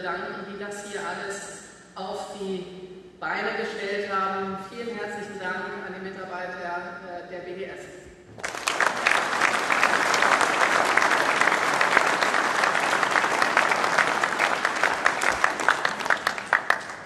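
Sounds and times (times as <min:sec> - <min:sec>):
audience applauding: 0:08.4 - 0:17.0.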